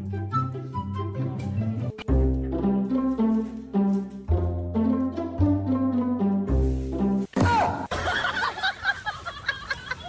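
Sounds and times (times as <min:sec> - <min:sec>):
light instrumental tune with bass: 0:00.0 - 0:07.3.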